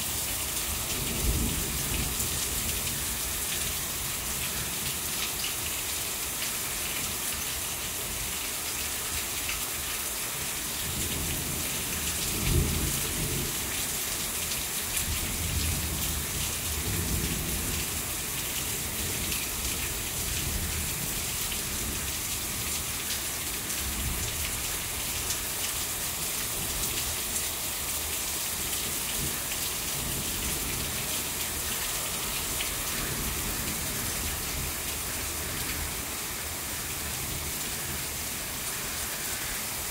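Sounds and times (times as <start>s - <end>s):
heavy rain falling: 0.0s - 39.9s.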